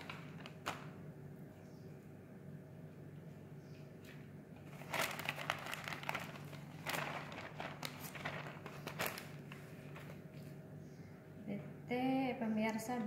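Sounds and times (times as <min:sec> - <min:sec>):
plastic zipper bag crinkling: 0:00.0 - 0:00.9, 0:04.6 - 0:10.3.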